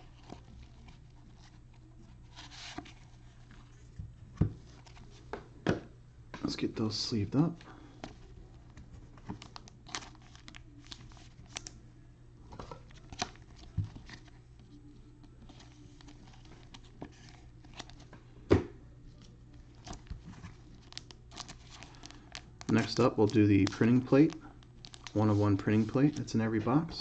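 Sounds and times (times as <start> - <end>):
plastic sleeves crinkling: 7.4 - 11.8, 19.1 - 26.9.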